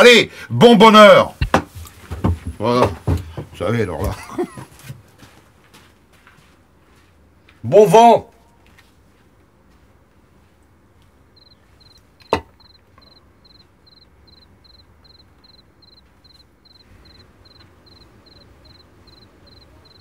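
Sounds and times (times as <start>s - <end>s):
cricket chirping: 11.4s - 20.0s.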